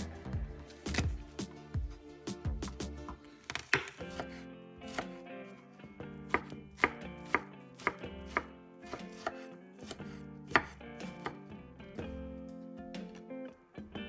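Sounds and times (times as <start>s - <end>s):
soft music: 0.0s - 14.0s
knife chopping on wooden board: 0.8s - 1.2s, 2.7s - 5.2s, 6.3s - 11.4s.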